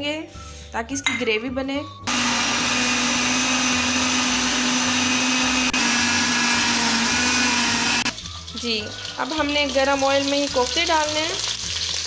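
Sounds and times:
blender grinding vegetables: 2.1 - 8.2.

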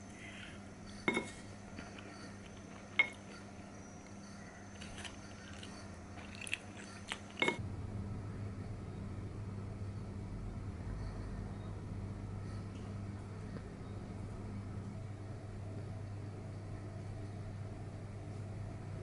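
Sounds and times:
wooden spoon clinking on plate: 3.0 - 3.3.

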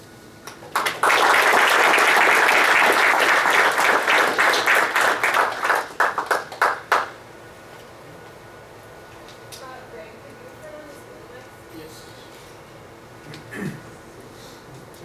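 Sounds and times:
audience applauding: 0.5 - 7.2.

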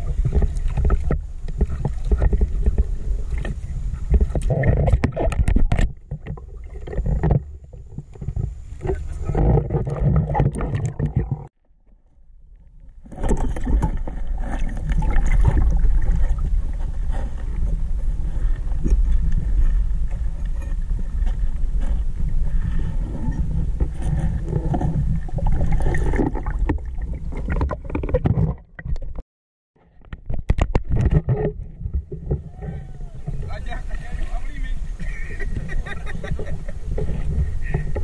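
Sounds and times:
muffled water rumbling: 0.0 - 29.2, 29.8 - 38.0
camera scraping and knocking: 0.1 - 11.5, 18.8 - 26.8, 27.4 - 29.2, 29.9 - 34.0.

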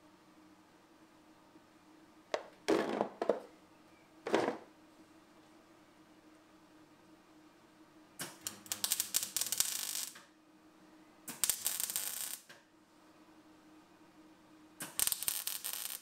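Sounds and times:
welder arc crackling: 8.2 - 10.2, 11.3 - 12.6, 14.8 - 16.0.

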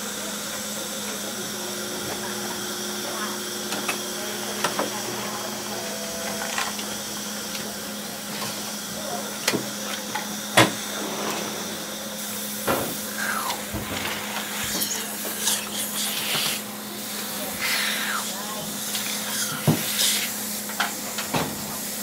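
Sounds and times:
dental equipment whine: 1.4 - 7.7, 12.3 - 20.9
suction hiss: 11.6 - 20.4.

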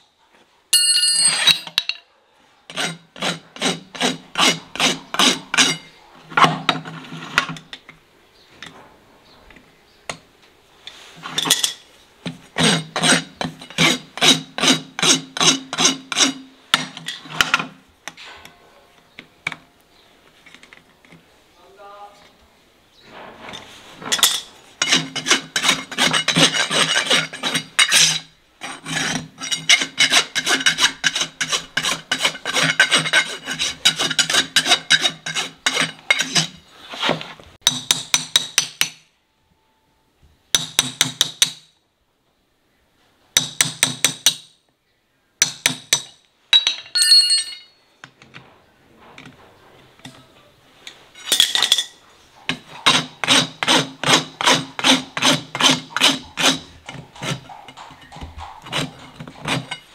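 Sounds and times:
rasp filing a hoof: 2.7 - 7.5, 12.3 - 17.8, 23.3 - 37.2, 52.3 - 59.9.

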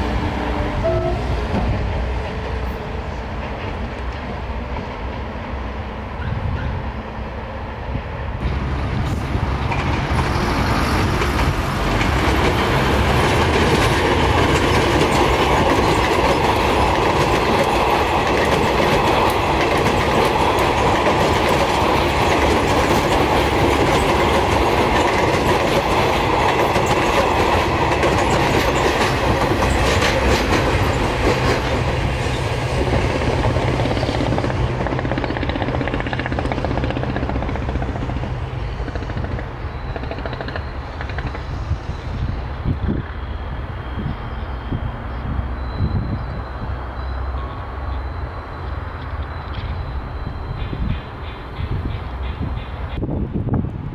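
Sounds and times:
train passing close by: 0.0 - 53.9
wheels clattering over rail joints: 9.5 - 41.5.

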